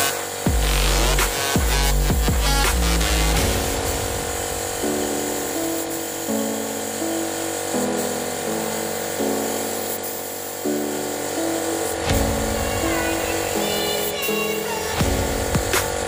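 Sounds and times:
buzzy synth chords: 0:00.0 - 0:16.0
heavy low beat: 0:00.4 - 0:06.3, 0:11.8 - 0:16.0.

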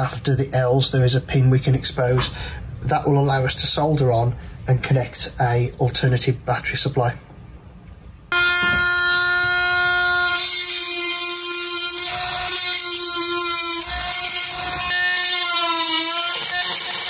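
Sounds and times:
rotary tool grinding: 0:08.4 - 0:17.0.

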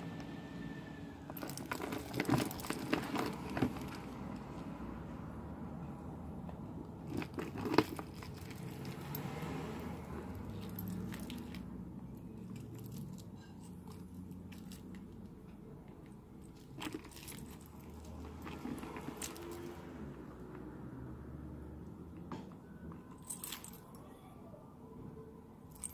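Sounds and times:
metal charms clinking: 0:07.0 - 0:15.3, 0:16.0 - 0:19.8, 0:23.2 - 0:24.0, 0:25.7 - 0:25.9.

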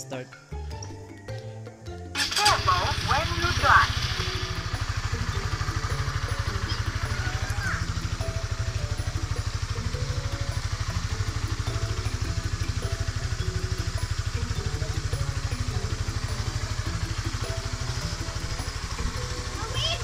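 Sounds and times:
motorcycle engine idling: 0:02.1 - 0:20.0.

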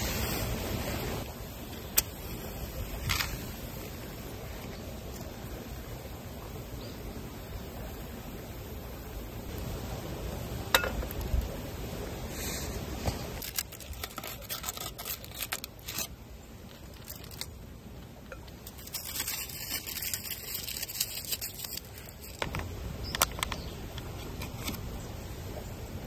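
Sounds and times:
scrapes taps and crinkling: 0:01.8 - 0:03.5, 0:12.5 - 0:24.8
brief hiss: 0:12.2 - 0:13.4.

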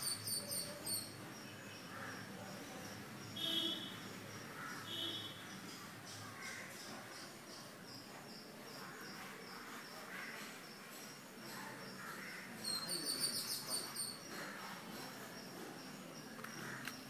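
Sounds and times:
rapid high-pitched bird chirps: 0:00.0 - 0:01.9, 0:12.6 - 0:17.0
faint high chirping: 0:00.0 - 0:17.0.

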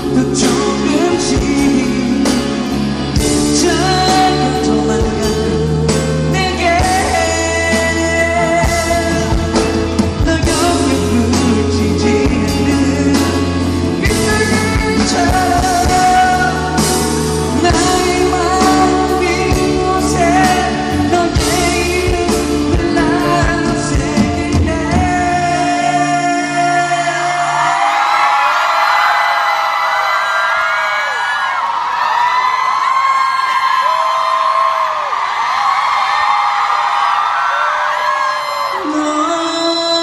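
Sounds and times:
instrumental backing with bass: 0:00.0 - 0:27.8
man singing into microphone: 0:00.0 - 0:29.4, 0:37.6 - 0:40.0.

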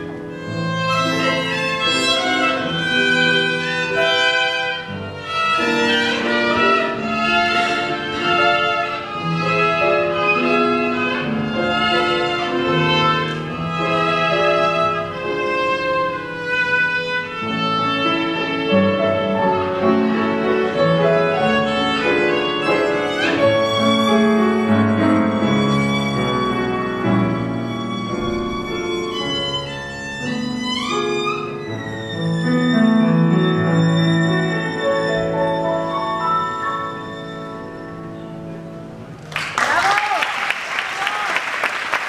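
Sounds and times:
solo violin playing: 0:00.0 - 0:38.6
piano accompaniment: 0:00.0 - 0:39.6.

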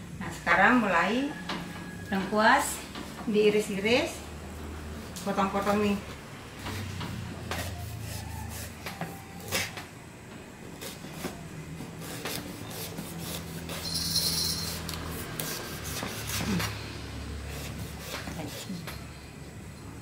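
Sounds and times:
knife cutting root on wooden board: 0:06.7 - 0:09.8, 0:10.8 - 0:13.8, 0:14.8 - 0:16.8, 0:17.5 - 0:19.0.

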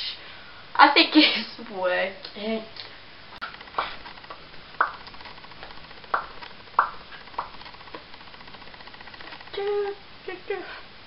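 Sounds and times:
faint room noise: 0:00.0 - 0:11.0
sharp clicks: 0:03.4 - 0:09.8.

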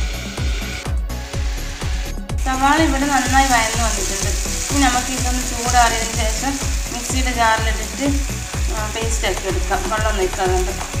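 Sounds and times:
background music with beat: 0:00.0 - 0:11.0
onions sizzling in a pan: 0:02.5 - 0:11.0.

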